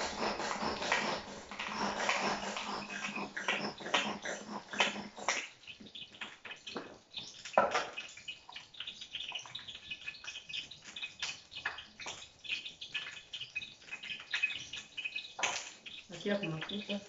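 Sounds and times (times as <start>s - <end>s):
utensils clicking and tapping at bowl: 0.0s - 8.0s, 13.8s - 17.0s.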